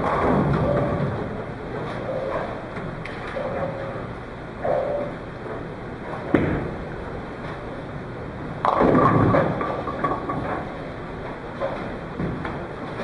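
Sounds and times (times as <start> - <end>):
bowling pins clattering: 8.6 - 10.8
bowling ball rolling: 8.6 - 13.0.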